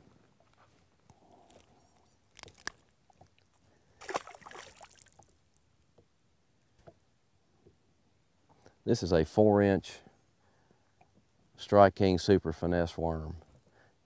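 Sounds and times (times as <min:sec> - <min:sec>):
brief water splash: 0:04.0 - 0:05.2.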